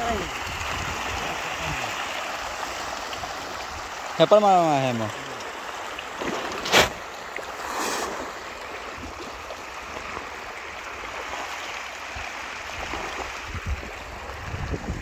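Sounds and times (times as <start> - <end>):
fish thrashing and splashing water: 5.1 - 14.4
sharp crack: 6.5 - 7.0.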